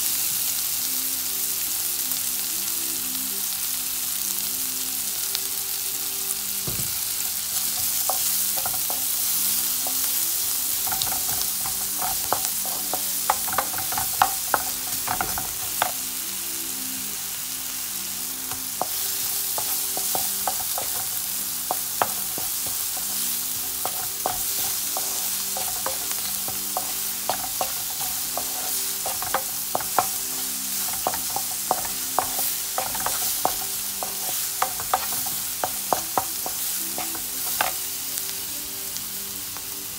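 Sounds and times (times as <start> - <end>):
onions sizzling in oil: 0.0 - 39.9
wooden spatula scraping pan: 22.0 - 30.2, 30.8 - 37.7.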